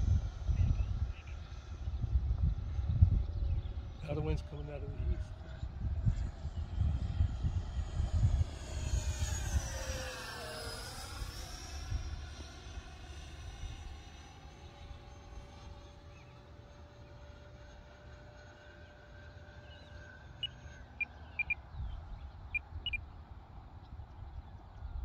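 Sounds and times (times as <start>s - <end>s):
wind on microphone: 0.0s - 14.1s
distant electric jet whine: 0.0s - 25.0s.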